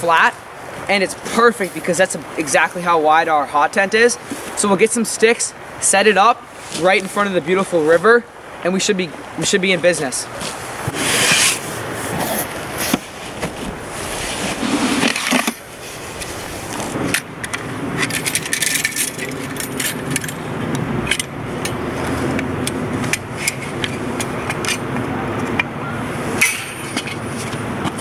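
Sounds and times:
backpack fabric rustling: 10.4 - 17.0
metallic clicks and rattles: 17.1 - 21.8.

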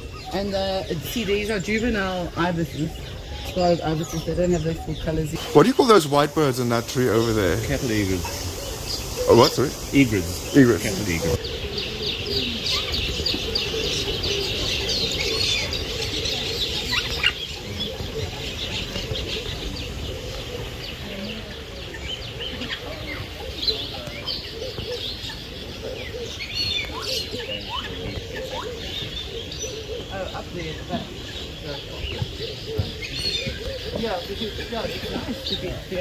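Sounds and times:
birds chirping and calling: 0.0 - 36.0.

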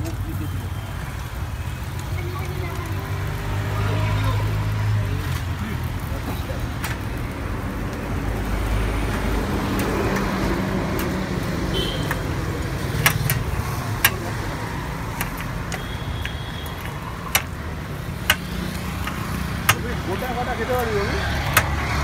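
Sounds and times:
street traffic rumble: 0.0 - 22.0
metal skewers clinking on steel: 12.9 - 14.3, 15.1 - 21.9.

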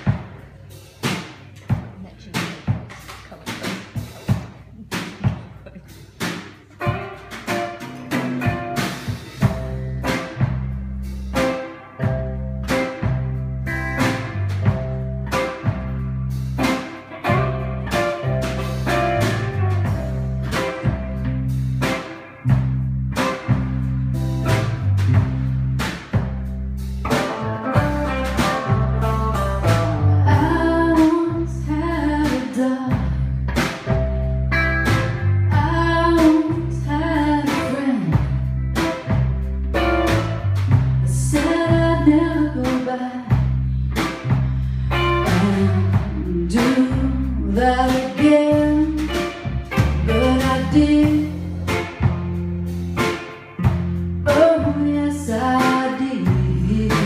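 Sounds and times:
rock band playing: 0.0 - 1.7, 3.4 - 57.0
woman singing: 30.2 - 33.3, 35.5 - 38.4, 41.0 - 43.5, 45.2 - 49.4, 50.1 - 51.5, 54.3 - 57.0.

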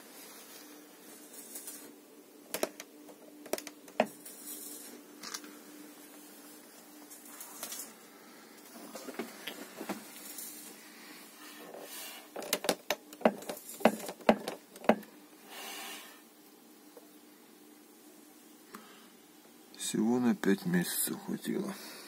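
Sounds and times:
faint rustling and scraping: 0.0 - 2.0, 2.6 - 12.6
sharp clicks and knocks: 12.4 - 15.1.

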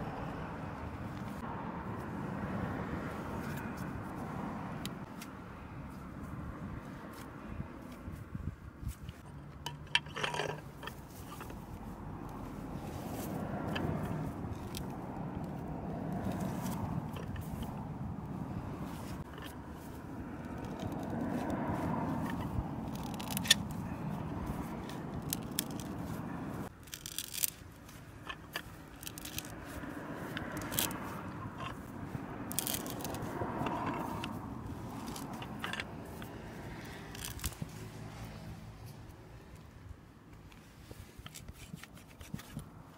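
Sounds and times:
hand auger boring into wood: 19.2 - 26.2, 26.8 - 37.7.

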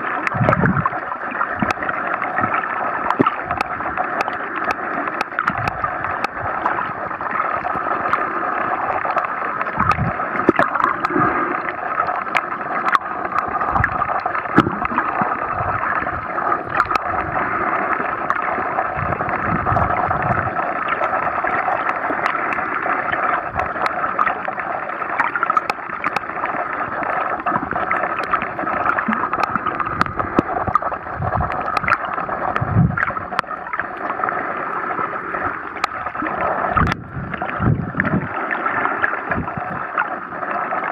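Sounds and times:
muffled underwater rushing: 0.0 - 40.9.

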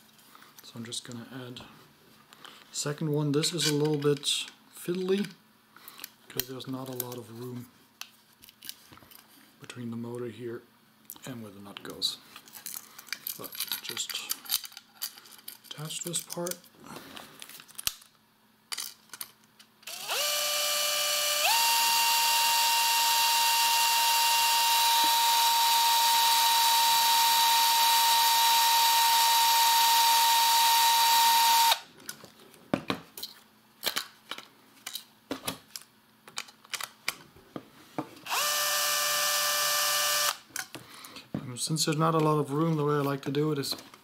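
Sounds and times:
cordless drill whining: 19.9 - 31.8, 38.2 - 40.4.

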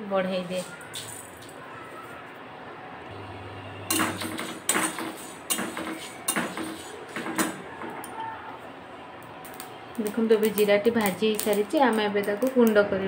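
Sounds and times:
metal spoon scraping metal pan: 3.9 - 7.6.

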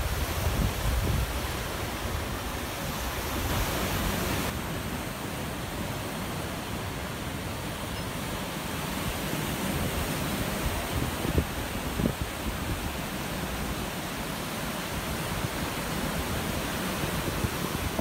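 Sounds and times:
wind buffeting microphone: 0.0 - 4.5, 9.5 - 14.0, 14.9 - 18.0
surf breaking on beach: 0.0 - 18.0.

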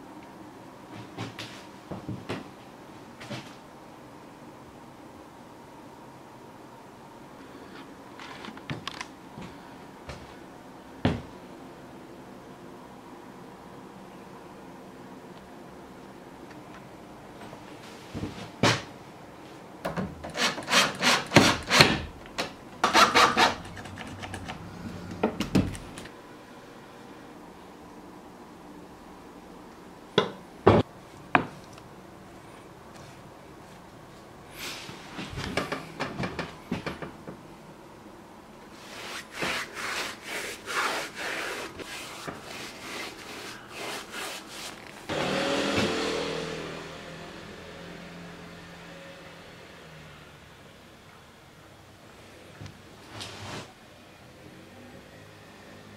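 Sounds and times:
brush scrubbing wood: 38.8 - 45.1.

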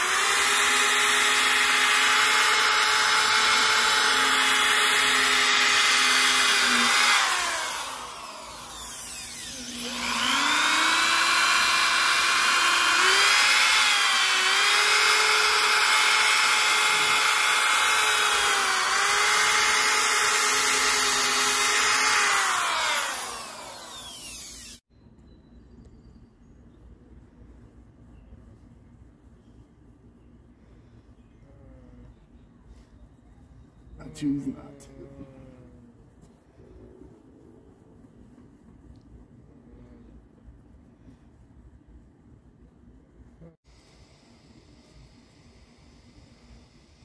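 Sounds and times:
drill whining: 0.0 - 24.9.

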